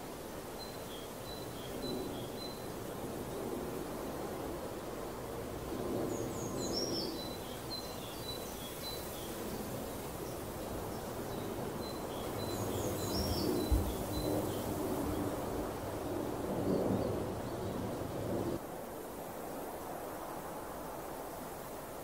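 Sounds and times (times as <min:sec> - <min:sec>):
birds chirping: 0:06.1 - 0:15.4.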